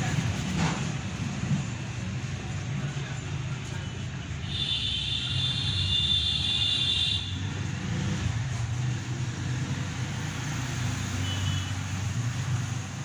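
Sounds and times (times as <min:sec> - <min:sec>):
vehicle engine rumbling: 0:00.0 - 0:04.5.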